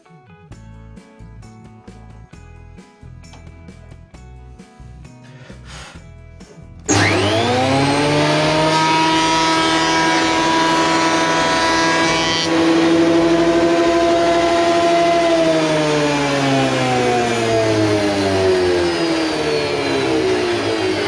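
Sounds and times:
thickness planer whining: 0:06.9 - 0:21.0.

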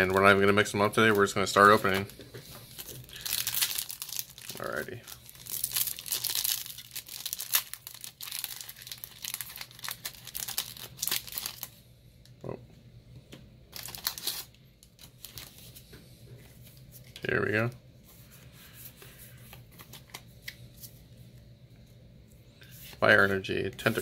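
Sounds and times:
cards rustling: 0:00.0 - 0:11.7
foil wrapper crinkling and tearing: 0:02.7 - 0:11.7, 0:13.8 - 0:15.6.

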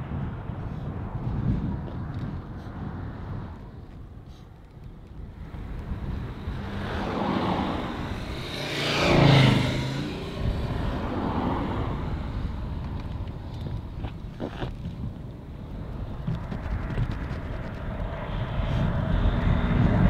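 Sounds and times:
car driving past: 0:05.4 - 0:13.4.

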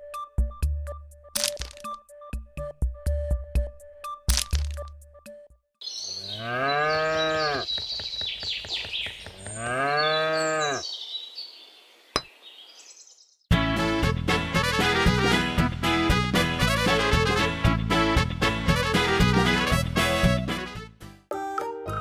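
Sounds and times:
cow mooing: 0:06.2 - 0:07.7, 0:09.5 - 0:10.8.

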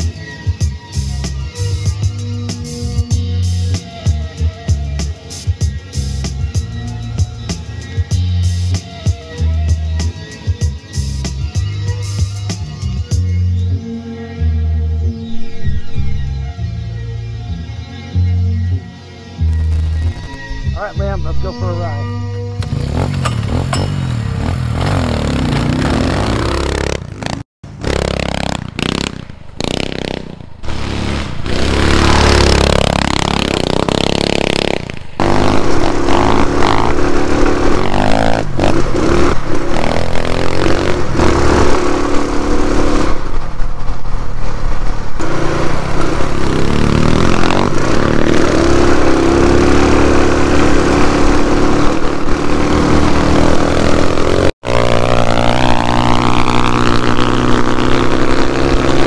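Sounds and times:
dirt bike engines revving: 0:20.8 - 0:59.0.

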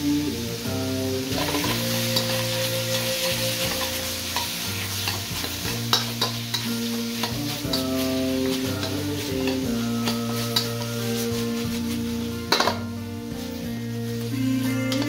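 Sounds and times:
food sizzling in a pan: 0:00.0 - 0:15.0
utensil clicking against pan: 0:01.4 - 0:10.9.

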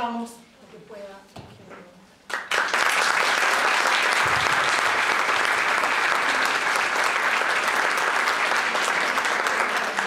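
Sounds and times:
audience clapping: 0:02.3 - 0:10.0.

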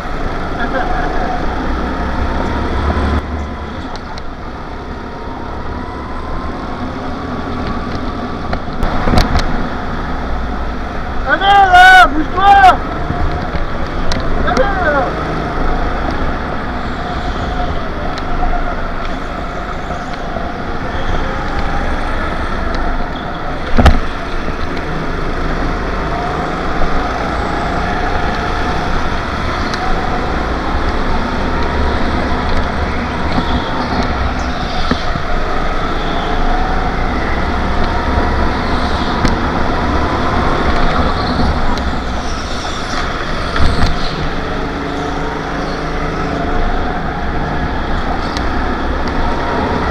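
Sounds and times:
other karts passing: 0:12.8 - 0:49.9
kart engine revving: 0:20.4 - 0:49.9.

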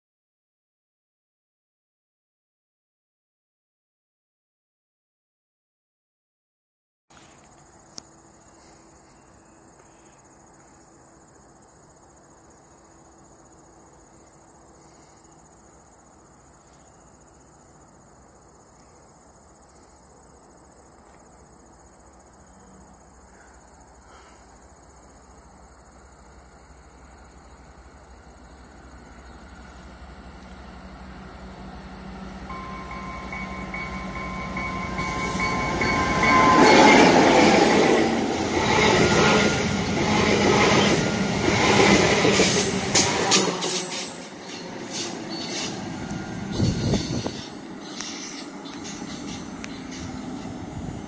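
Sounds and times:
insects chirring: 0:07.1 - 0:51.0
train rumbling on tracks: 0:24.9 - 0:51.0.

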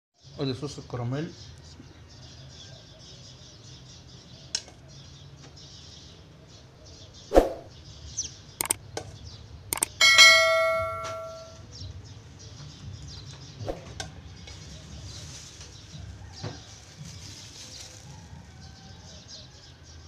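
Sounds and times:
ringing clink: 0:09.8 - 0:11.6.

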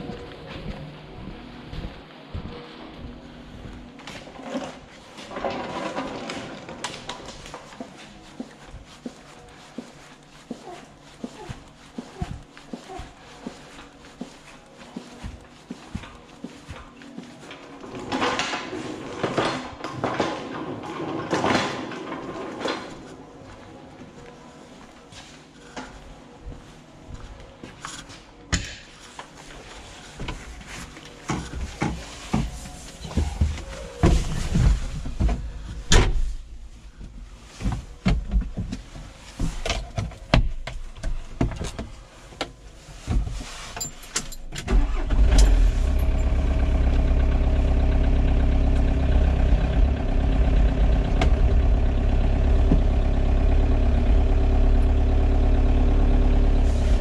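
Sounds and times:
forklift engine idling: 0:44.8 - 0:57.0.

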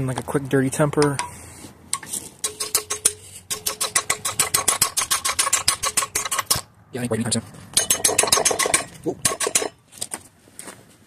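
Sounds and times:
rapid metallic clicking: 0:02.4 - 0:06.6, 0:07.8 - 0:09.8.

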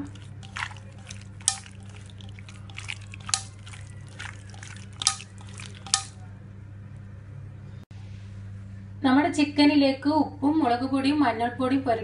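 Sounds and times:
raw chicken squelching by hand: 0:00.0 - 0:06.2.

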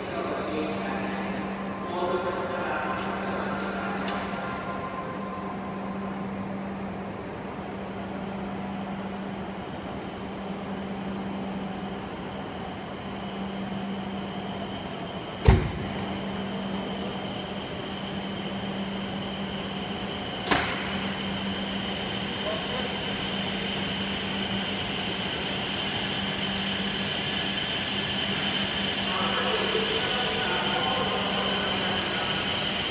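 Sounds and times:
faint high whine: 0:00.0 - 0:32.9
loud thump: 0:15.4 - 0:15.9.

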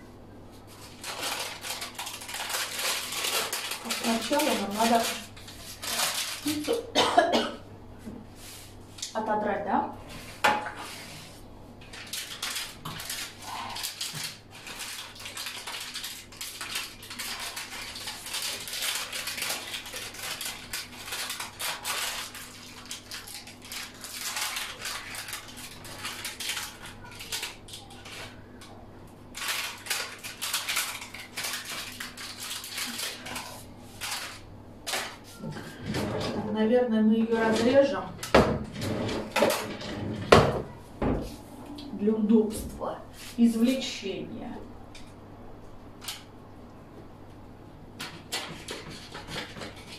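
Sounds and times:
plastic spatula scraping baking paper: 0:00.5 - 0:06.9, 0:10.0 - 0:28.4, 0:29.4 - 0:34.4, 0:37.2 - 0:38.0.

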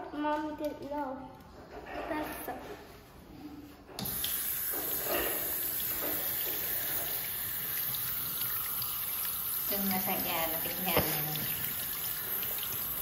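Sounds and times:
water running from faucet: 0:04.0 - 0:13.0.

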